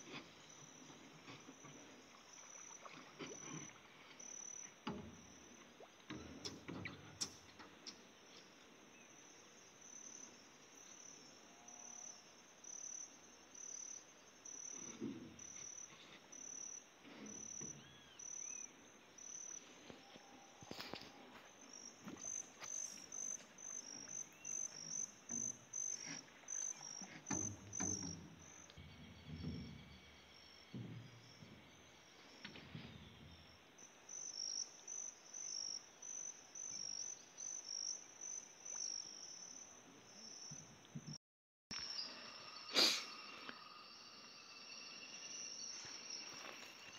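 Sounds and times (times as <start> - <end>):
crickets chirping: 0.0 - 41.1, 41.7 - 46.9
dull knocks: 30.7 - 31.8.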